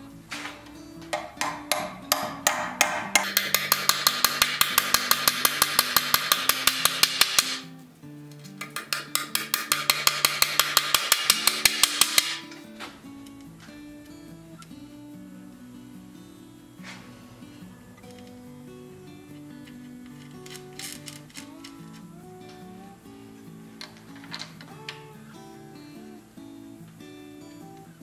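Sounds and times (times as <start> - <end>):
acoustic guitar music: 0.0 - 28.0
hammer tapping nails into wood: 0.4 - 7.6, 8.5 - 12.5.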